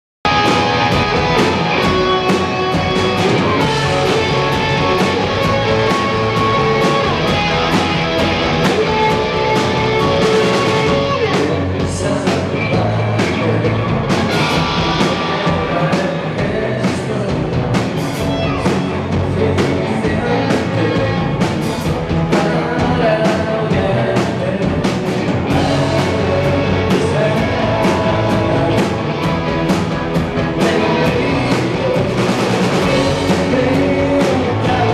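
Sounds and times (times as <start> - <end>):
live rock band playing: 0.3 - 34.9
man singing into microphone: 10.9 - 14.1, 15.2 - 17.6, 19.2 - 21.4, 22.3 - 29.0, 30.6 - 34.9.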